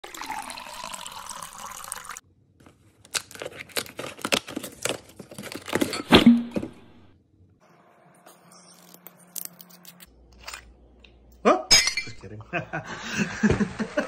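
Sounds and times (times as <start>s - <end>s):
wine pouring into a glass: 0.0s - 2.2s
cardboard crackling and tearing: 3.0s - 5.9s.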